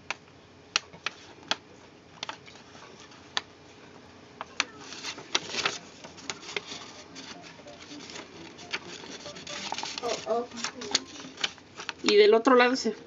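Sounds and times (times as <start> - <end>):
paper crackling and rustling: 2.2 - 3.5, 4.4 - 12.4
sharp paper crinkles: 4.5 - 12.3.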